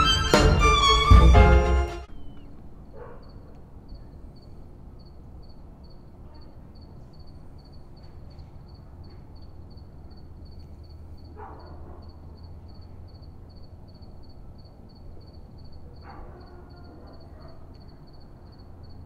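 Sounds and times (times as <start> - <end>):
violin music: 0.0 - 2.2
low hum of night ambience: 0.0 - 19.0
cricket chirping: 2.1 - 19.0.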